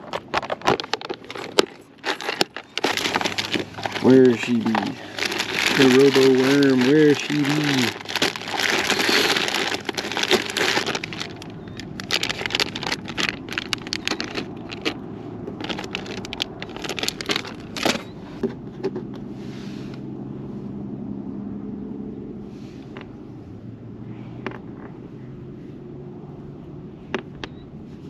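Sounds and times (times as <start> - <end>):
plastic packaging crinkling: 0.0 - 18.1
small clicks and crackles: 0.0 - 18.1
low steady hum: 0.0 - 28.0.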